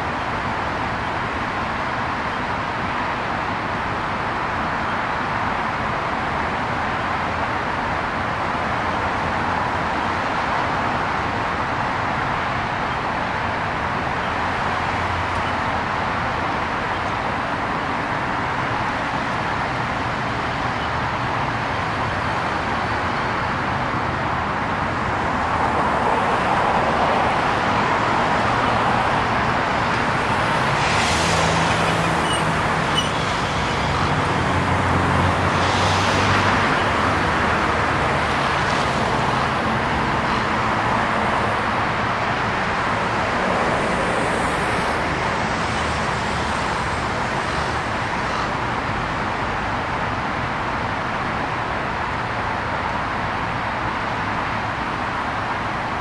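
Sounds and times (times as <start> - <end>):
road traffic driving past: 0.0 - 56.0.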